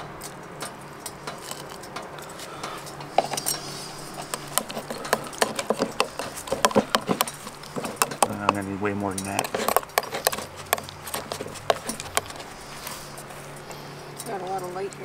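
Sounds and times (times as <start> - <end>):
metal utensil scraping metal pot: 2.6 - 14.4.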